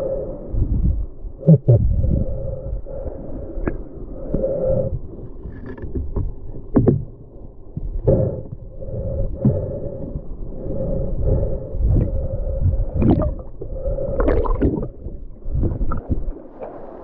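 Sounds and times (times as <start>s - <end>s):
gurgling hum: 0.0s - 17.0s
underwater river rush: 0.0s - 17.0s.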